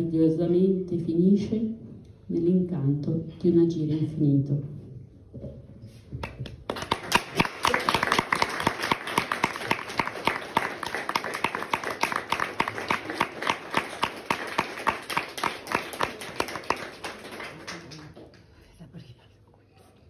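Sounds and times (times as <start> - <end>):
audience applauding: 6.2 - 18.5.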